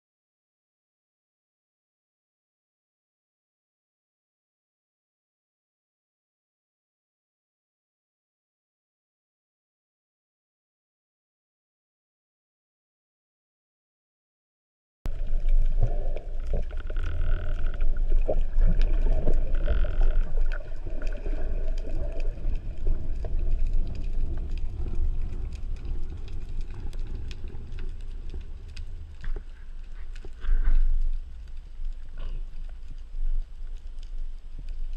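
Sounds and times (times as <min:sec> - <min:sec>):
low rumble of moving water: 0:15.1 - 0:34.9
sharp clicks underwater: 0:15.1 - 0:34.9.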